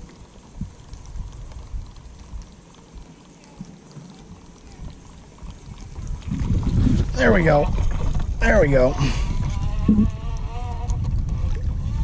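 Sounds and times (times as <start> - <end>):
faint light ticks: 0.0 - 5.6
waves lapping against kayak hull: 0.0 - 12.0.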